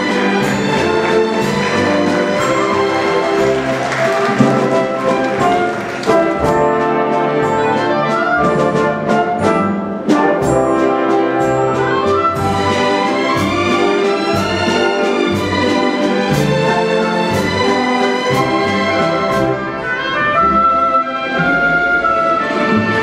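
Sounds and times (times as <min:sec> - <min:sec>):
brass section: 0:00.0 - 0:16.7, 0:17.5 - 0:23.0
orchestra playing a waltz: 0:00.0 - 0:23.0.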